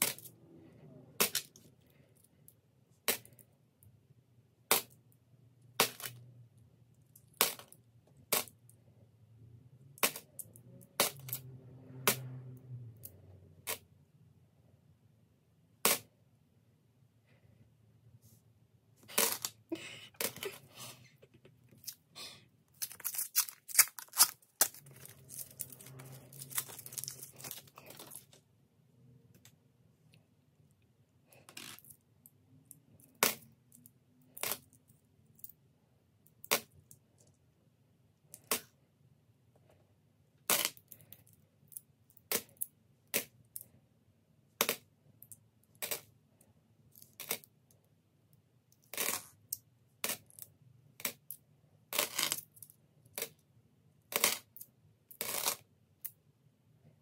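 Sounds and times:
rustling: 19.0 - 28.4.

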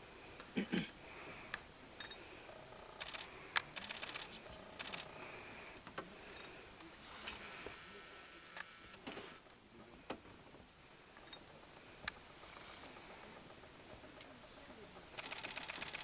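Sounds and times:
rapid mechanical clicking: 2.7 - 5.2, 13.0 - 16.0.

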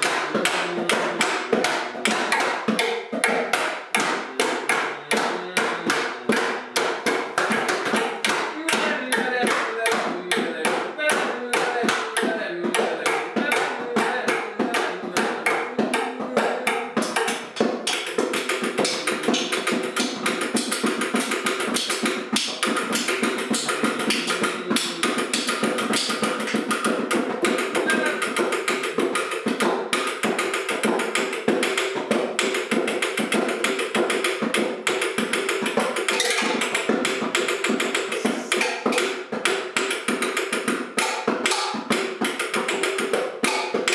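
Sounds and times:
bongos and objects tapped: 0.0 - 43.9
person vocalizing: 4.2 - 6.8, 24.0 - 25.9, 27.8 - 28.2, 38.0 - 38.9.

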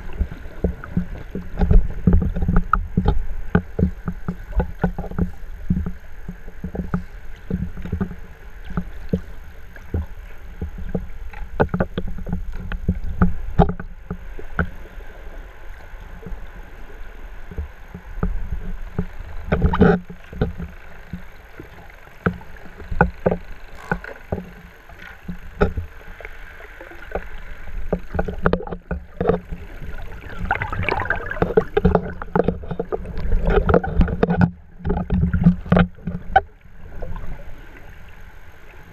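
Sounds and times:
muffled water sloshing: 0.0 - 38.9
irregular clicks: 22.2 - 25.8.

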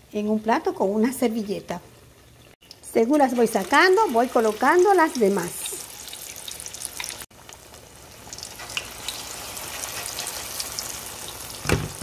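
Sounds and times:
fritters sizzling in hot oil: 2.0 - 12.0
thump: 11.6 - 12.0.

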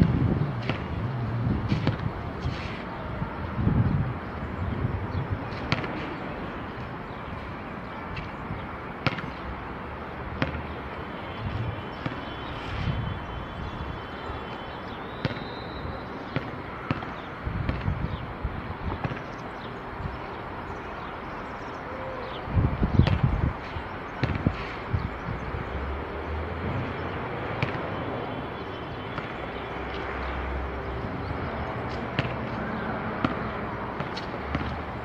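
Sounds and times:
wind buffeting microphone: 0.0 - 8.8, 11.4 - 12.0, 12.6 - 14.4, 17.4 - 20.6, 21.5 - 28.2.

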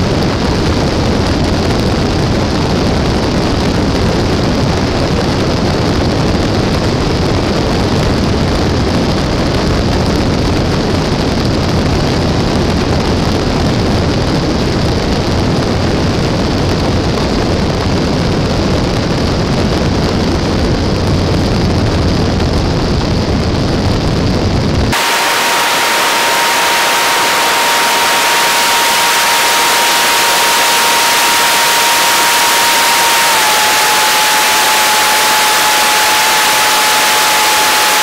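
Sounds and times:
wind buffeting microphone: 0.0 - 37.2
thin steady whine: 24.9 - 38.0.

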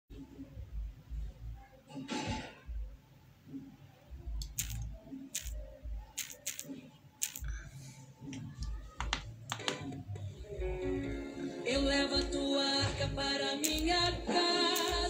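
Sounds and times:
sharp clicks and taps: 4.4 - 5.6, 6.2 - 7.5, 8.3 - 10.0, 13.6 - 14.2, 14.8 - 15.0.

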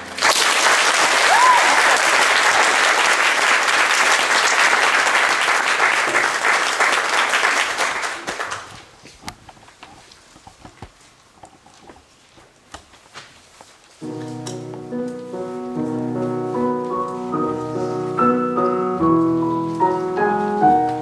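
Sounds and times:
audience applauding: 0.0 - 8.9
piano chord: 14.0 - 21.0.

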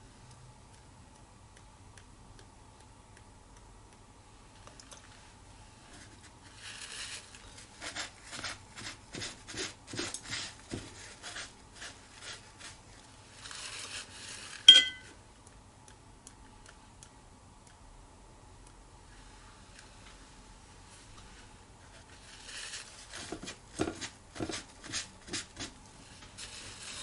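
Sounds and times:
brush scrubbing and tapping: 5.9 - 15.1, 21.1 - 27.0
brush clinking on tableware: 14.7 - 15.1.

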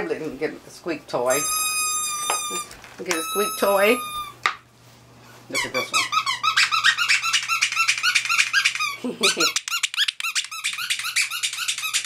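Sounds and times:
squeaky dog toy squeaking: 1.3 - 4.4, 5.5 - 12.0.

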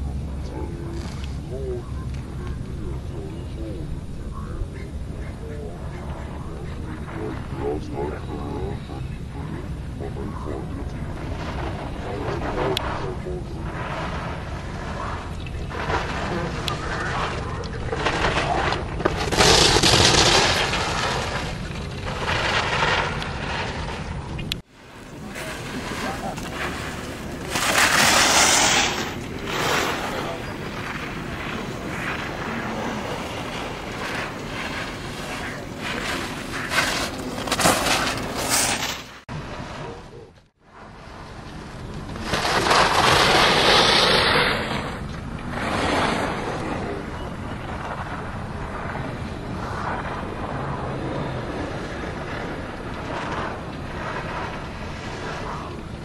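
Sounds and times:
steady low rumble: 0.0 - 38.4, 39.2 - 56.0
ski edges scraping snow: 13.7 - 24.0, 25.0 - 39.2, 42.1 - 45.0.

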